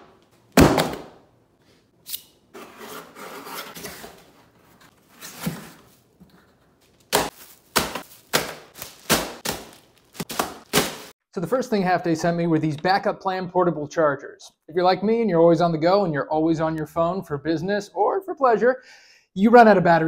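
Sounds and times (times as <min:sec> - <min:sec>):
knife scraping cardboard: 0:02.6 - 0:05.9.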